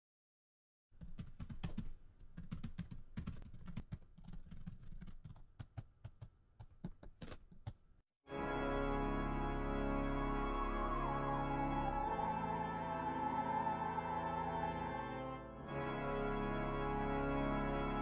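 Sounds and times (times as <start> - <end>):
steady music: 8.3 - 18.0.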